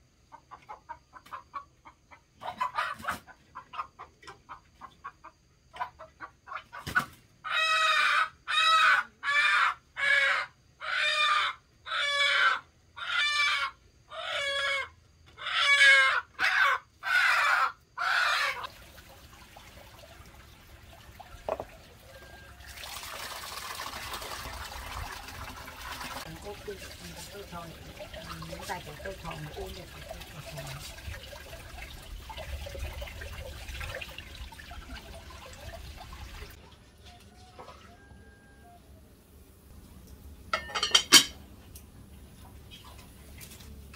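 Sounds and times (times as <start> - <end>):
chicken calling: 5.8 - 18.7.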